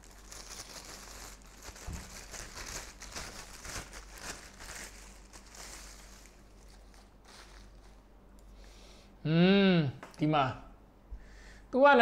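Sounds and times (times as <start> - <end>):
plastic packaging crinkling: 0.0 - 8.1.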